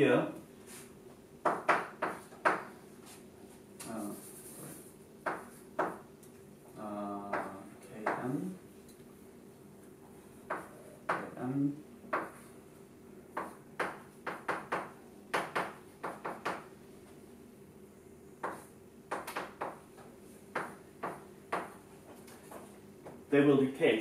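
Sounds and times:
chalk tapping and scraping on blackboard: 0:01.5 - 0:03.2, 0:03.8 - 0:06.1, 0:10.5 - 0:11.4, 0:12.1 - 0:12.5, 0:13.3 - 0:16.6, 0:18.4 - 0:23.2.

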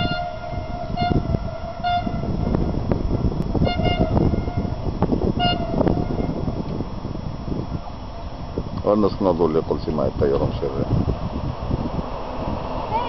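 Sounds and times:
train horn toots: 0:00.0 - 0:06.5
gusty low rumble: 0:00.0 - 0:13.0.

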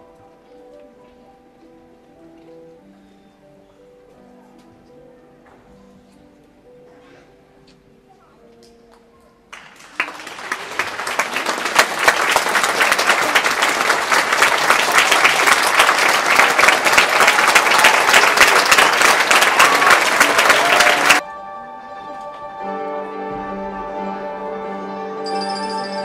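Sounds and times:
audience applauding: 0:09.5 - 0:21.2.

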